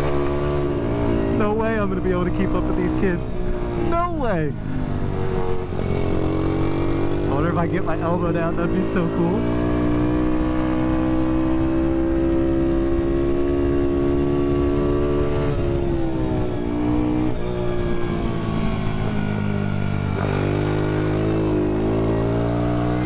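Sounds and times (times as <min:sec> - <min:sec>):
minibike engine at high revs: 0:00.0 - 0:23.0.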